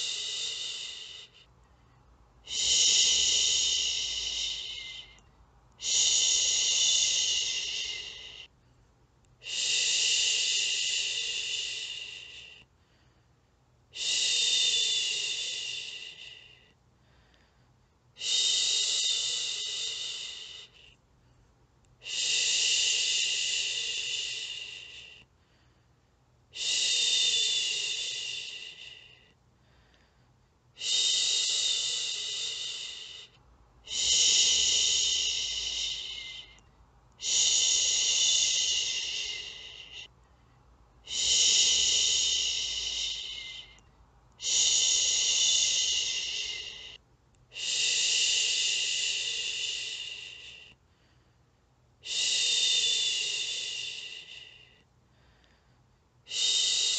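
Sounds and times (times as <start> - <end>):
woman shushing: 2.5 - 5.2, 37.2 - 40.1, 41.1 - 43.8, 44.4 - 47.0.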